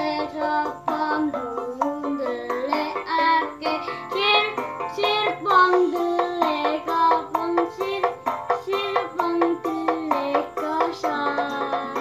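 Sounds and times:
accompanying music with beat: 0.0 - 12.0
child singing: 0.0 - 12.0.

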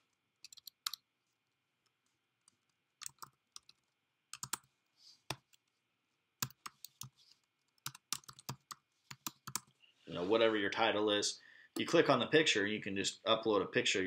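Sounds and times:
keyboard typing: 0.4 - 1.0, 2.5 - 4.7, 6.4 - 9.8.

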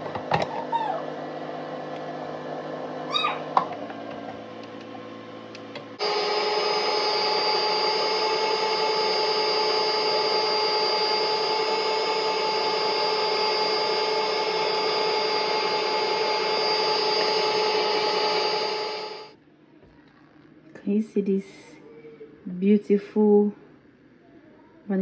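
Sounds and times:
electric stand mixer whining: 0.0 - 19.4.

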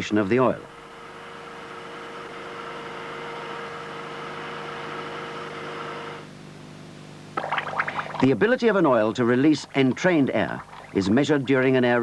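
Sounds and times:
machine hum of held tones: 0.0 - 8.4
faint steady hum: 0.0 - 12.0.

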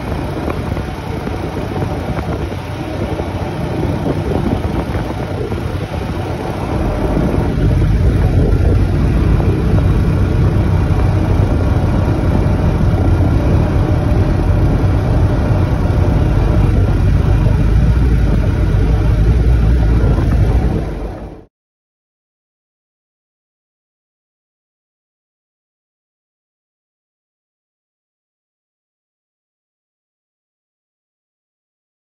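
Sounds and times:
vehicle engine and road rumble: 0.0 - 21.5.

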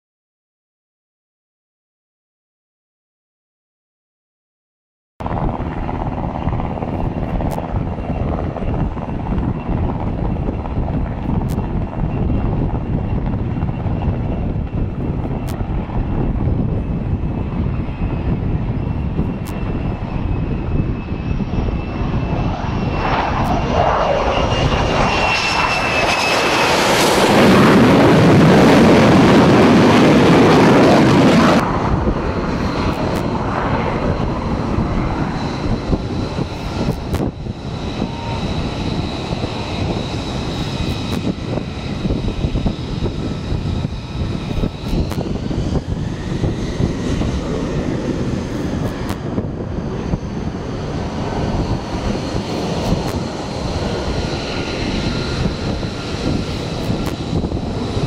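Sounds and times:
jet engine roar: 5.2 - 58.0
jet engine whine: 5.2 - 58.0.

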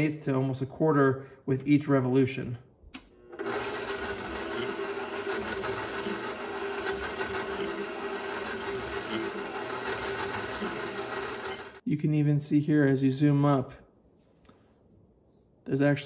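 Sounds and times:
stand mixer running: 3.2 - 11.8.

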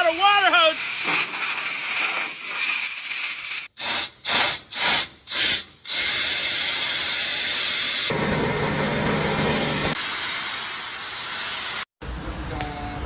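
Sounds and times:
water spraying hiss: 0.7 - 3.7.

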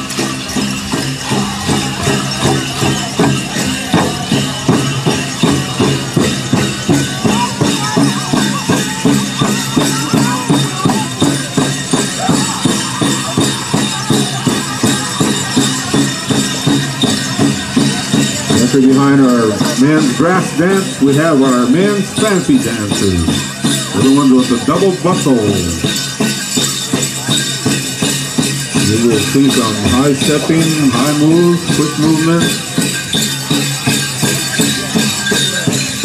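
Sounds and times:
chorus singing: 0.0 - 23.2, 28.8 - 32.3
jingling bells: 0.0 - 36.0
large drum steady beat: 0.0 - 36.0.

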